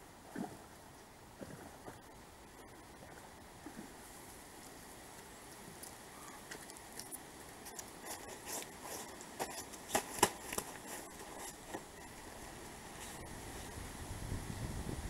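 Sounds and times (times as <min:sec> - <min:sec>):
footsteps: 0:06.4 - 0:13.3
fabric bag rustling: 0:08.1 - 0:13.3.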